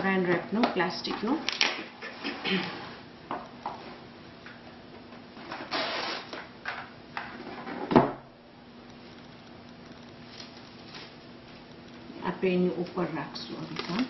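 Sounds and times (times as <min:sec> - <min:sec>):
plastic wrap crinkling and tearing: 0:10.2 - 0:11.7, 0:13.4 - 0:14.0.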